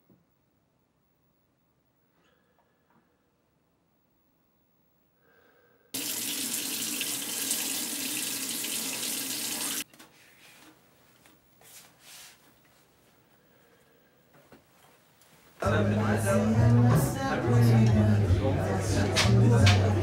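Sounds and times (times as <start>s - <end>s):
water splashing and dripping: 6.0s - 9.8s.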